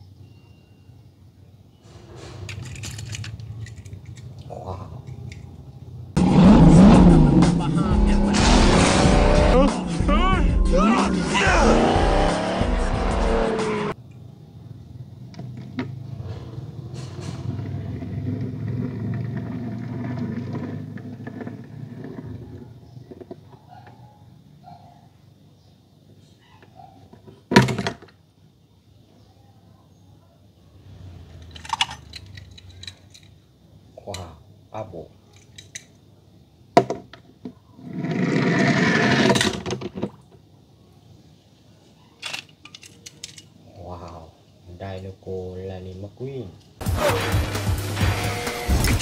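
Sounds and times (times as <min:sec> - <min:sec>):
toy car wheels rolling on plastic: 0:02.4 - 0:04.4, 0:17.6 - 0:23.4, 0:37.8 - 0:40.1.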